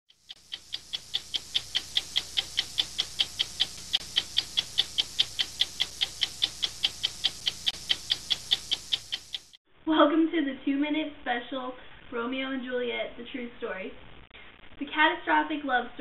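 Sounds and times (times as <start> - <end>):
clock ticking quickly: 0.1 - 9.6.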